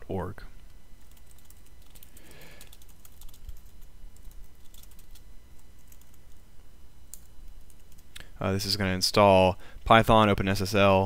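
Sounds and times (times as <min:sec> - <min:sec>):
computer keyboard typing: 0:01.0 - 0:06.4, 0:07.1 - 0:08.2.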